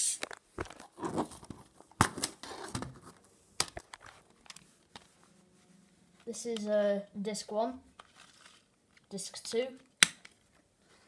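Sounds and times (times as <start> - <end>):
plastic rustling: 8.0 - 9.1.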